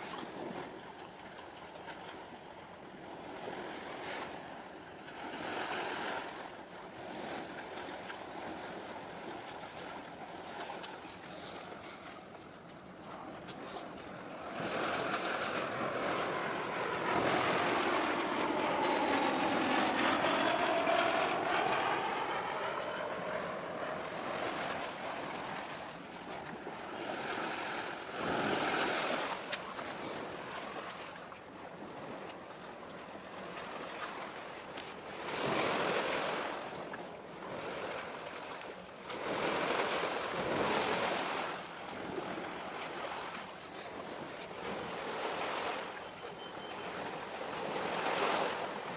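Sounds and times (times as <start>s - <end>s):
sea waves washing in: 0.0s - 48.9s
wind on microphone: 12.8s - 31.0s.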